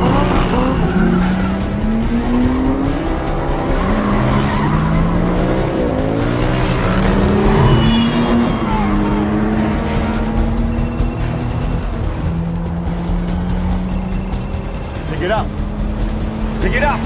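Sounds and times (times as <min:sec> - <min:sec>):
car engines revving: 0:00.0 - 0:17.0
tyre squeal: 0:07.3 - 0:09.2.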